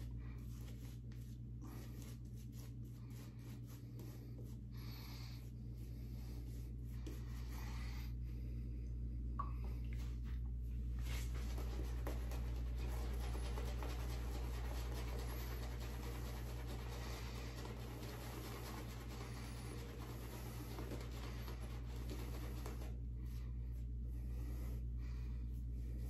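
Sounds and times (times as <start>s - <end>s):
shaving brush scratching: 0.0s - 4.7s, 11.0s - 23.0s
low hum: 0.0s - 26.0s.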